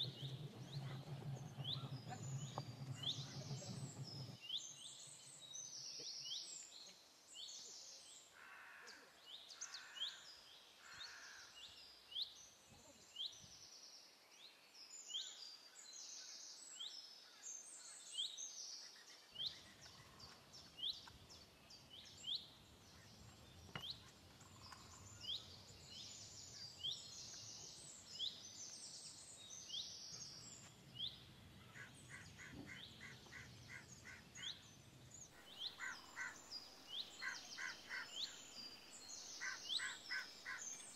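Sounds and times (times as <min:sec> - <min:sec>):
birds chirping: 0:00.0 - 0:07.0, 0:17.7 - 0:40.9.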